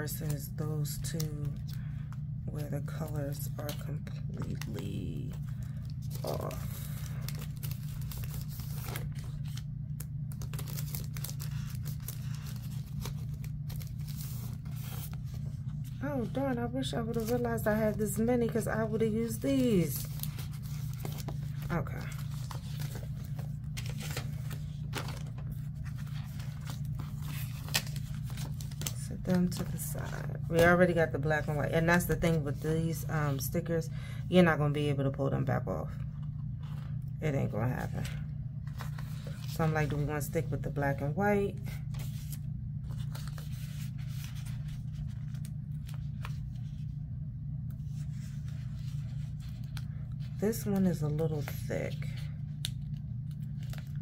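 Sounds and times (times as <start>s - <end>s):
steady low hum: 0.0s - 54.0s
paper pages rustling: 0.3s - 33.0s, 35.9s - 40.8s, 41.6s - 47.1s, 47.7s - 54.0s.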